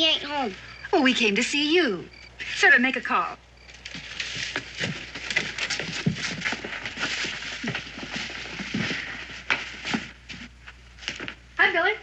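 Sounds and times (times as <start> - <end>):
rustling: 3.5 - 11.6.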